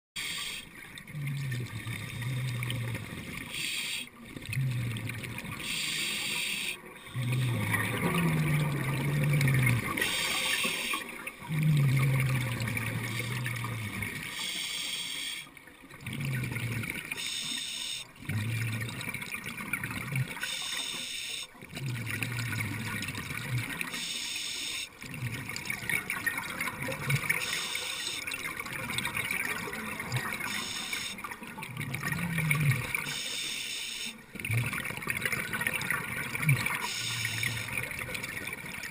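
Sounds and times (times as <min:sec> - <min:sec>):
hissing regulator inhale: 0:00.2 - 0:00.7, 0:03.5 - 0:04.1, 0:05.6 - 0:06.8, 0:10.0 - 0:11.1, 0:14.2 - 0:15.5, 0:17.2 - 0:18.1, 0:20.4 - 0:21.5, 0:23.9 - 0:24.9, 0:27.4 - 0:28.3, 0:30.5 - 0:31.2, 0:33.0 - 0:34.2
bubbling exhale underwater: 0:01.0 - 0:06.3, 0:07.0 - 0:14.5, 0:15.9 - 0:20.7, 0:21.6 - 0:24.1, 0:24.9 - 0:33.3, 0:34.2 - 0:38.9.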